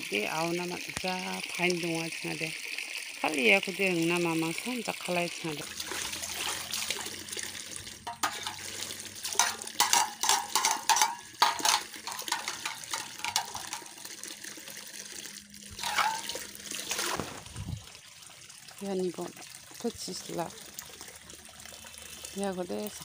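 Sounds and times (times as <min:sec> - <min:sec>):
water gurgling into metal pot: 0:00.0 - 0:23.0
louder water splashes: 0:15.7 - 0:18.0.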